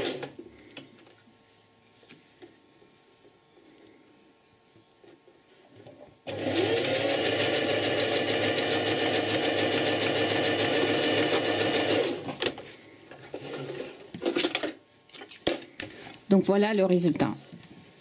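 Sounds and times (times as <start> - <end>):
sewing machine stitching: 6.3 - 12.5.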